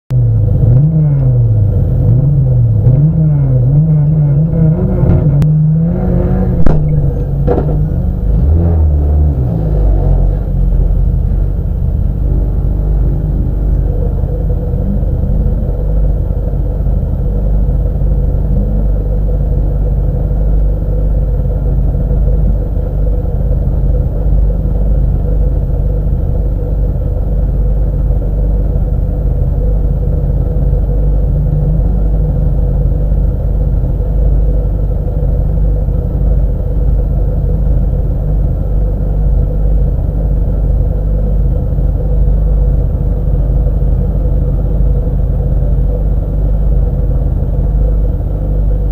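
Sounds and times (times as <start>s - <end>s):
race car engine idling: 0.1s - 48.9s.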